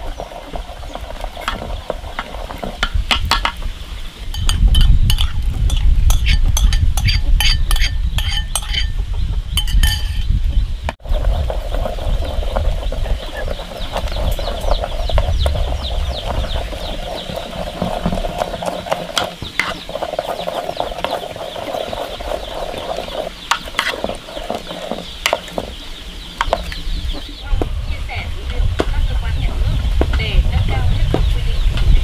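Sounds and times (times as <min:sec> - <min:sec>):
chopsticks stirring beans and water: 0:00.0 - 0:09.0, 0:11.1 - 0:27.2
small birds chirping: 0:00.0 - 0:32.0.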